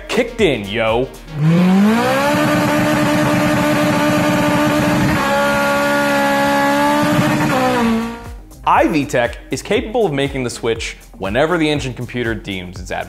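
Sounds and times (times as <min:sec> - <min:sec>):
car engine revving high: 0:01.3 - 0:08.4.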